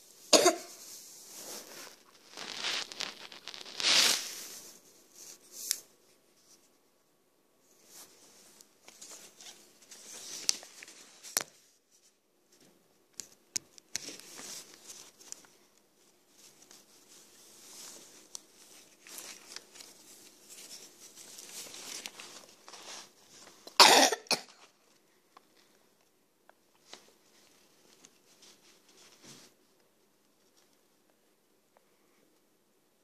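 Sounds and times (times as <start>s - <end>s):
person coughing: 0.3s - 0.8s, 23.8s - 24.6s
paper sheets rustling: 0.7s - 5.8s, 7.8s - 23.8s.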